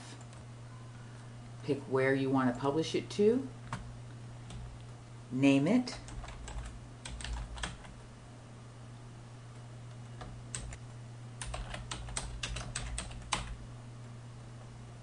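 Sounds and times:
typing on computer keyboard: 6.0s - 8.0s, 10.1s - 10.8s, 11.4s - 13.6s.

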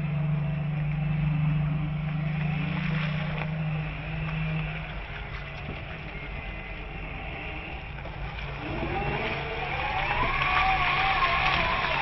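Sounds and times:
rising engine whine: 0.0s - 12.0s
road and wind noise: 0.0s - 12.0s
vehicle engine rumble: 0.0s - 12.0s.

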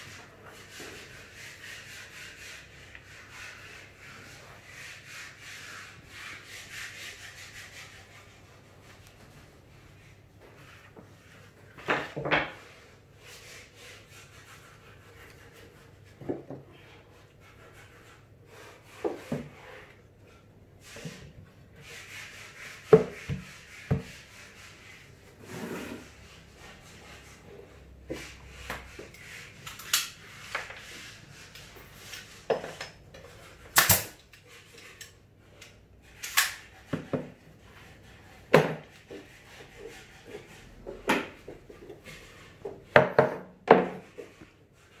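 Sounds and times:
wood scraping on wood: 10.4s - 33.7s.

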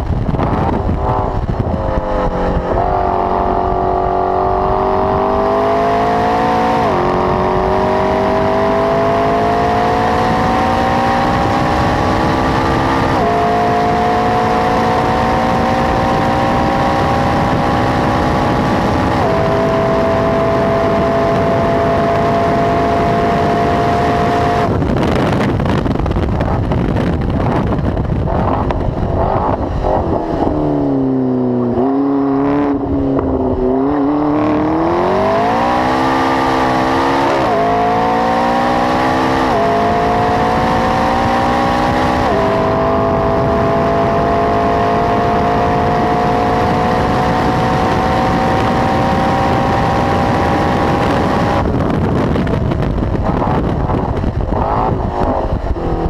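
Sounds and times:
sports car engine revving: 0.0s - 56.0s
exhaust pops and crackles: 24.7s - 29.6s, 48.0s - 56.0s.

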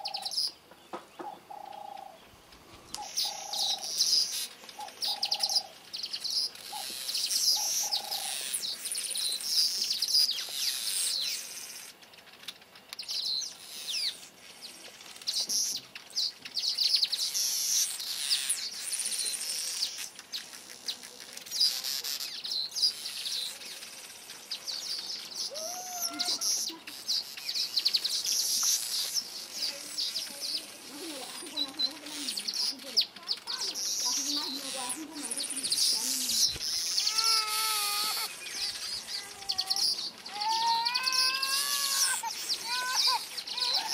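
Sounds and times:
birds chattering: 0.0s - 43.9s.

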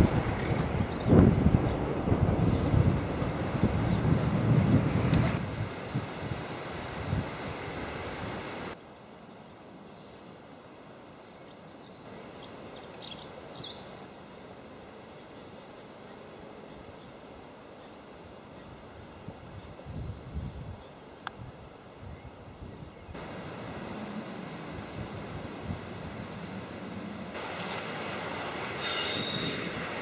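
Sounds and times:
wind buffeting microphone: 0.0s - 8.8s, 19.2s - 20.8s, 21.4s - 30.0s
bird singing high notes: 28.8s - 29.7s.

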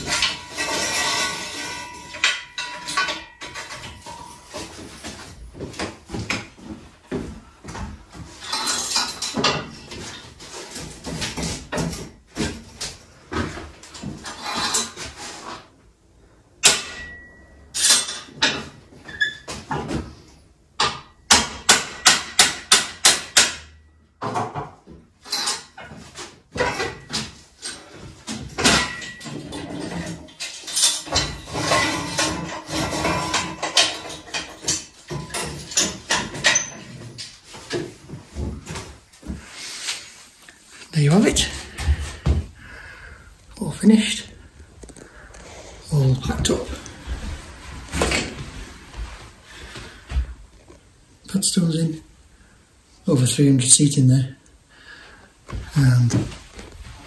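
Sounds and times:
metal props clanking: 0.0s - 6.8s, 8.2s - 15.7s, 25.2s - 39.0s.

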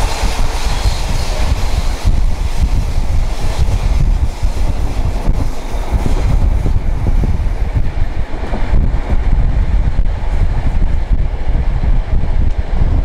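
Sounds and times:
train carriage rumbling on rails: 0.0s - 13.0s
wind buffeting microphone: 0.0s - 13.0s.

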